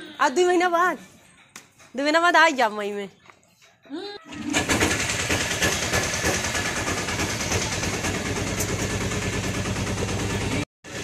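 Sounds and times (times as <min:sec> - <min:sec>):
vehicle engine running: 0:04.5 - 0:11.0.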